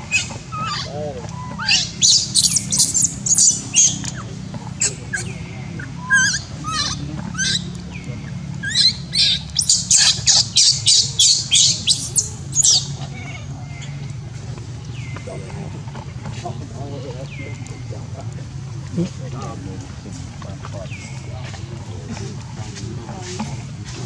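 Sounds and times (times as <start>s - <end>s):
baby monkey distress squeals: 0.0s - 4.2s, 4.8s - 7.7s, 8.6s - 13.9s.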